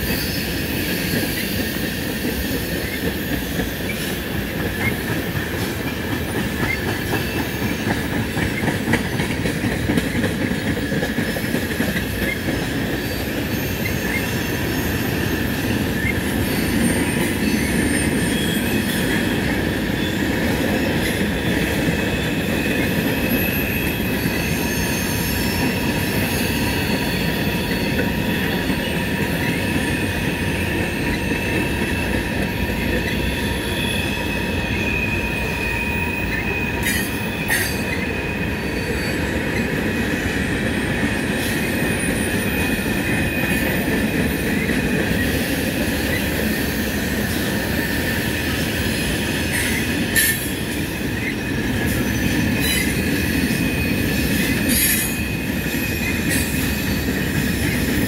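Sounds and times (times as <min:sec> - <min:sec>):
train wheels rumbling on rails: 0:00.0 - 0:58.0
high wheel squeal: 0:12.1 - 0:58.0.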